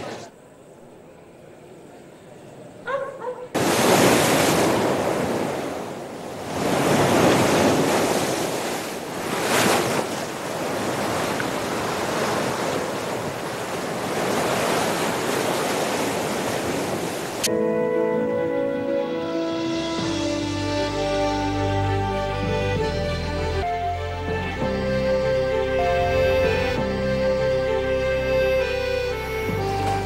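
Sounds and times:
surf breaking on rocks: 0:03.6 - 0:17.5.

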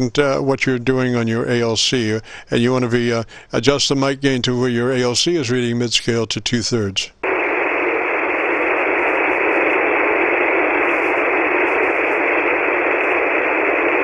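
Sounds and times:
radio receiver hiss: 0:07.0 - 0:14.0.

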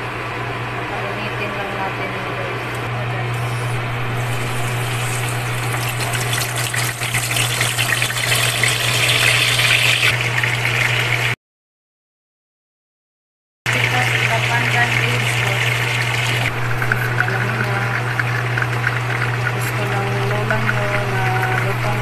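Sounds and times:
steady low hum: 0:00.0 - 0:08.8, 0:13.7 - 0:22.0
oil sizzling in frying pan: 0:04.1 - 0:11.3.

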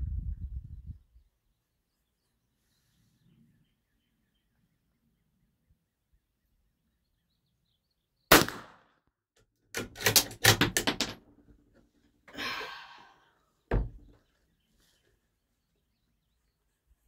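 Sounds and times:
gunshot: 0:08.3 - 0:09.0.

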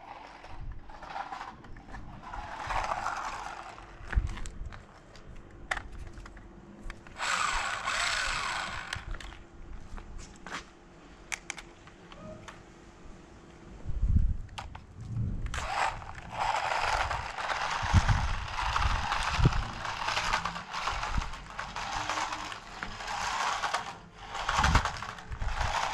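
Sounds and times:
toy car motor whirring: 0:00.0 - 0:04.5, 0:07.1 - 0:09.4, 0:15.5 - 0:25.9
handling clicks: 0:11.3 - 0:12.6.

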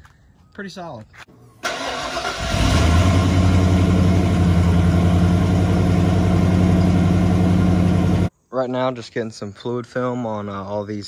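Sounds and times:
car engine cranking and idling: 0:01.6 - 0:08.3.

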